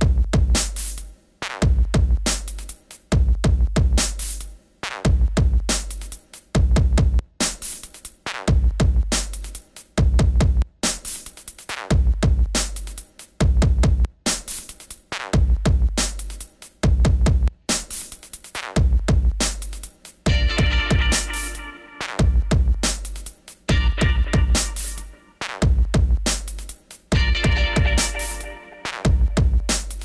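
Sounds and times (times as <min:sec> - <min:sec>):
electronic music with drum-machine beat: 0:18.6 - 0:30.0.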